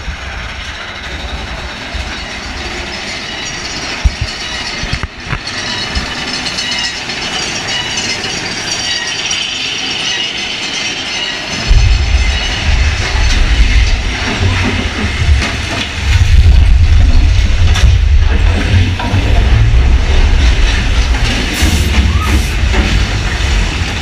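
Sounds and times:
roller coaster cars rattling: 0.0 - 24.0
deep rumble: 11.6 - 24.0.

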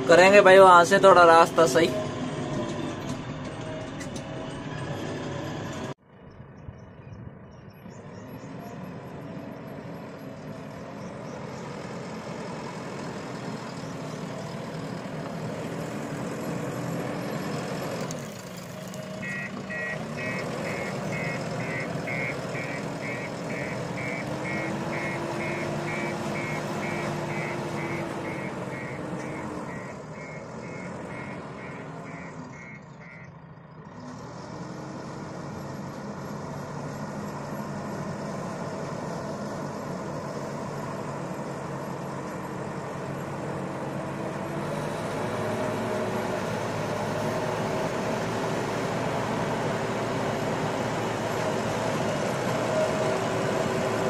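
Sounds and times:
diesel engine running and revving: 0.0 - 54.0
reversing alarm beeping: 19.2 - 33.3.

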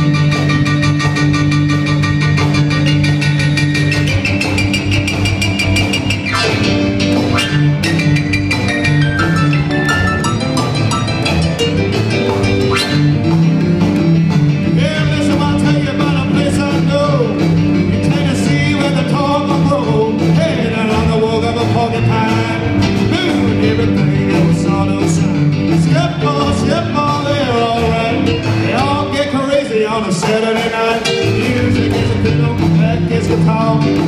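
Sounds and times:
rockabilly band playing: 0.0 - 34.0
man singing: 14.6 - 34.0.

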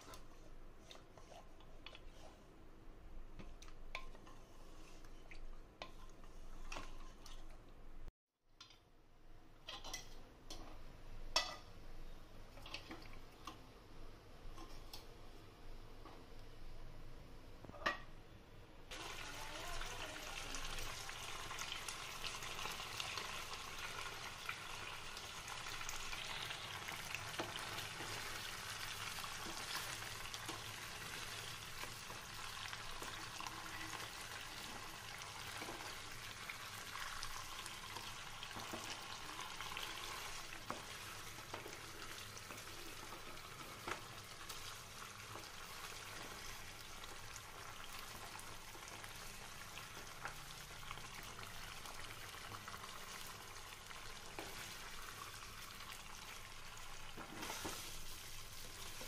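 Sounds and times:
food sizzling in a pan: 18.9 - 59.0.

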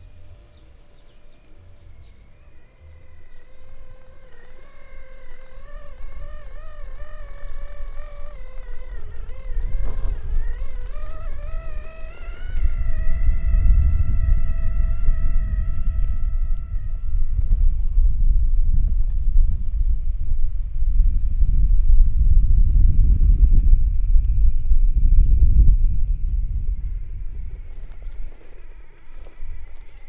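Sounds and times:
electric motor whine: 0.0 - 30.0
low rumble: 0.0 - 30.0.

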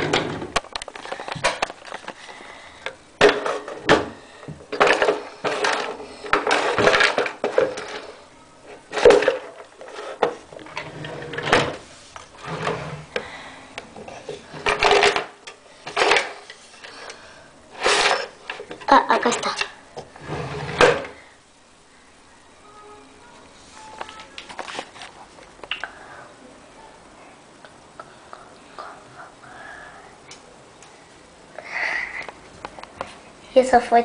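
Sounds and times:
rummaging rustles and knocks: 3.2 - 8.2, 8.8 - 13.1, 14.1 - 16.5.

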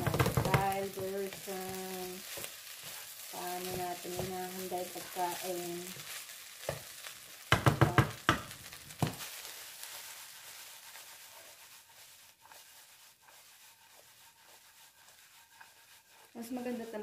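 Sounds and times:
spatula knocking on pan: 0.0 - 1.1, 6.6 - 9.2
faint sizzling: 0.0 - 17.0
spatula stirring rice in a pan: 0.0 - 17.0.

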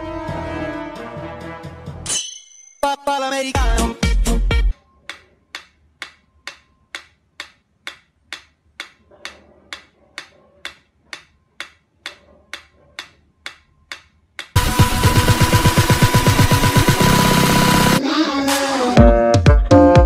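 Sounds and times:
metronome ticking: 5.0 - 9.0, 9.7 - 14.6.

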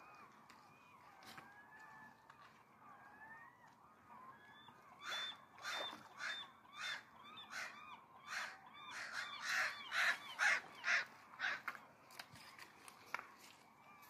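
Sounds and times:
gulls calling: 0.0 - 11.8.

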